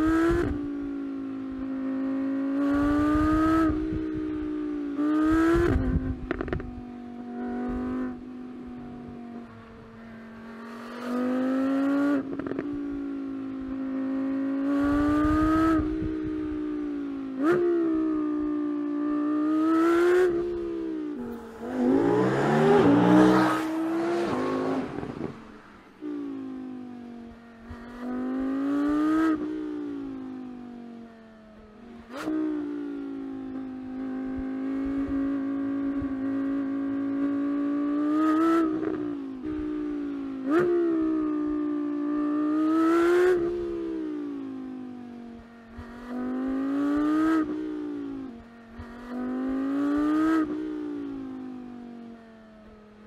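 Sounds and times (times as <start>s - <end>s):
car engine accelerating hard: 21.1s - 26.1s
car sweeping past: 21.2s - 25.9s.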